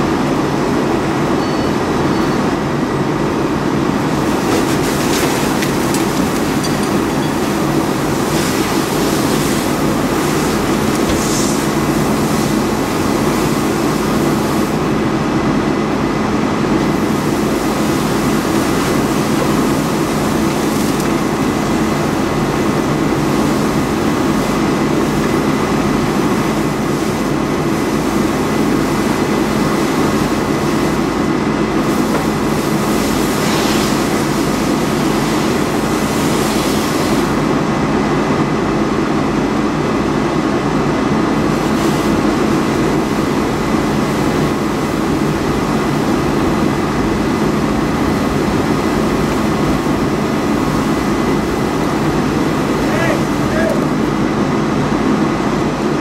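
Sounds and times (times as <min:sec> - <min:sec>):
fire hose stream hissing: 0:03.9 - 0:15.0, 0:16.8 - 0:37.6, 0:41.4 - 0:54.3.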